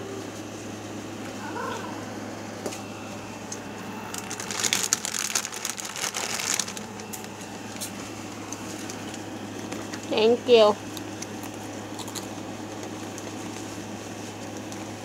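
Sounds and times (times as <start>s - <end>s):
plastic snack bag crinkling: 4.1s - 7.3s, 11.3s - 13.3s.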